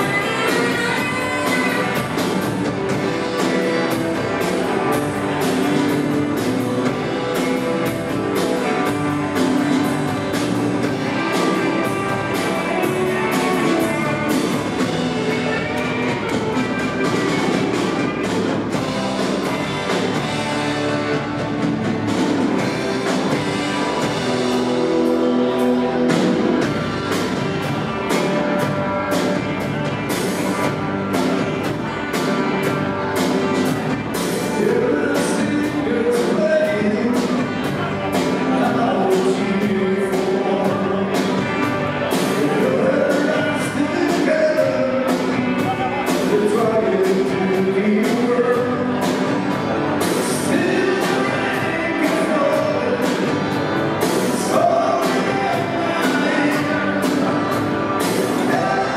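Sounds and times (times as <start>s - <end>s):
man singing lead: 0.0s - 17.4s, 34.3s - 58.9s
drums: 0.0s - 58.9s
electric and acoustic guitars: 0.0s - 58.9s.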